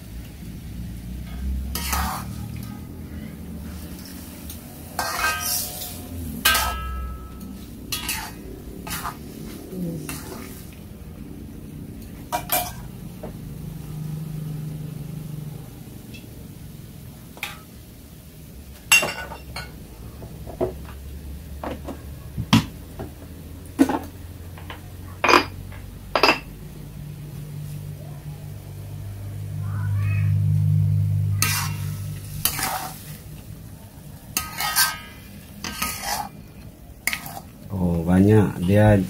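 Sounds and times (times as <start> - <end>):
low hum: 0.0 - 18.8, 23.4 - 34.4
metal spatula scraping a wok: 1.2 - 2.8, 3.7 - 10.8, 31.2 - 33.5, 34.2 - 37.6.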